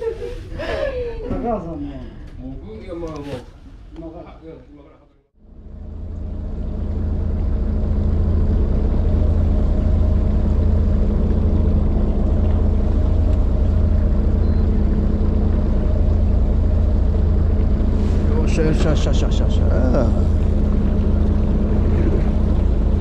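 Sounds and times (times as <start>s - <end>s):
boat engine drone: 5.4s - 23.0s.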